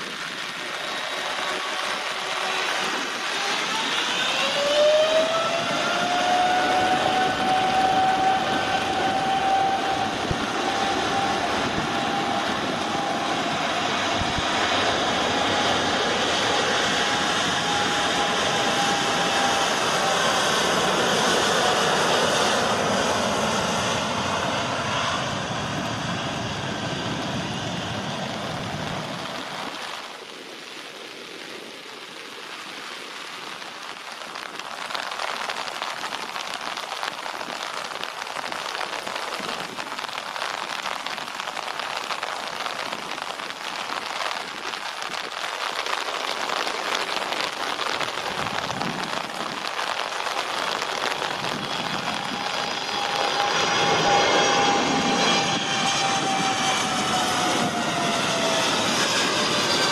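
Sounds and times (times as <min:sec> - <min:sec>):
jet engines whine and roar: 0:00.0 - 0:59.9
heavy rain hissing: 0:28.0 - 0:55.0.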